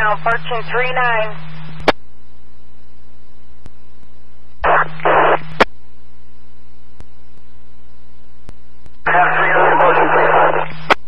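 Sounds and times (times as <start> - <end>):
radio scanner hiss and hum: 0.0 - 11.0
radio noise bursts: 4.6 - 5.7, 9.0 - 11.0
sharp radio click: 8.8 - 11.0.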